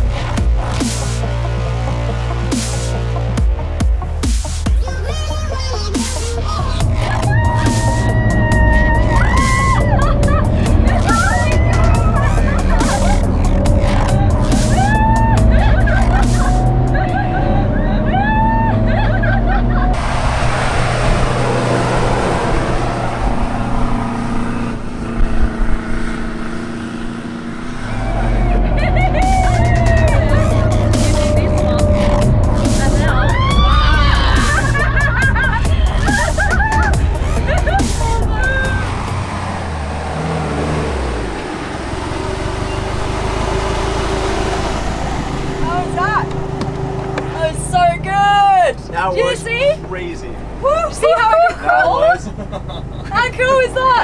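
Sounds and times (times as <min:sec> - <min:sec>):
truck engine running: 0:00.0 - 0:54.0
vehicle whine: 0:04.9 - 0:54.0
people laughing: 0:06.0 - 0:20.0, 0:28.0 - 0:39.0, 0:50.6 - 0:54.0
steady rushing noise: 0:19.6 - 0:51.3.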